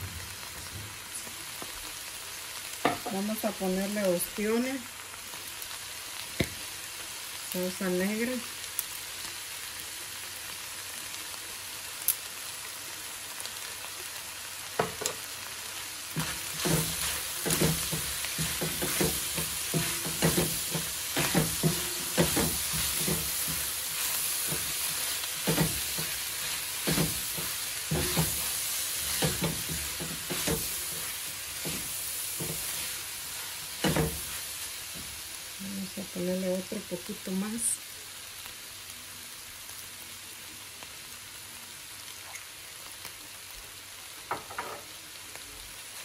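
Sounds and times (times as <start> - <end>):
meat sizzling in a pot: 0.0 - 46.0.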